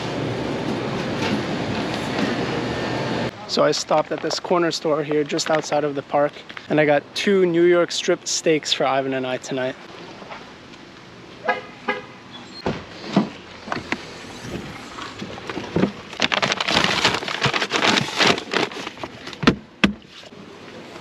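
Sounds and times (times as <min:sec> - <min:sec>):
rustling and rattling: 0:13.1 - 0:19.4.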